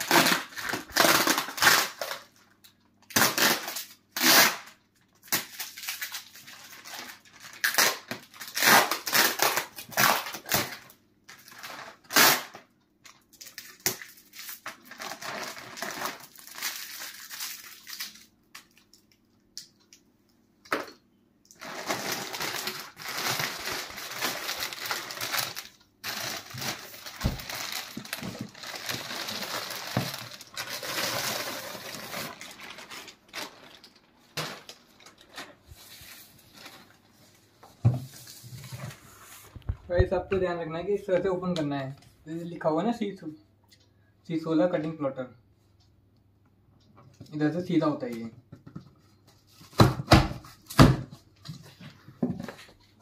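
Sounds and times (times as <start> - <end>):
plastic cover rustling: 3.2 - 19.2, 21.5 - 40.3.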